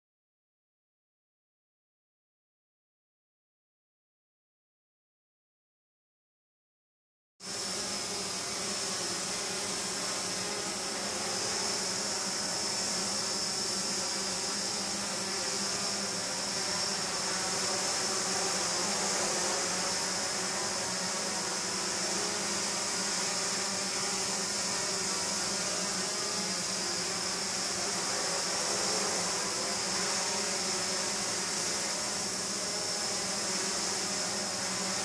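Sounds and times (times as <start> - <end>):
drone propellers buzzing: 7.5 - 35.0.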